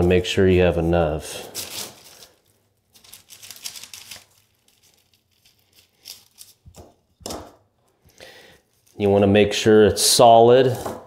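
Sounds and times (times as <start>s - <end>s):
parchment paper crinkling: 0.0s - 7.2s, 8.6s - 9.2s.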